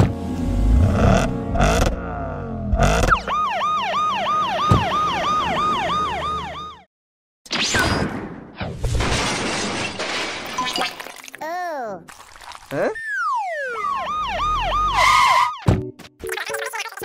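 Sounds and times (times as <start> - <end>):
police siren wail: 3.1 - 6.9, 13.1 - 15.7.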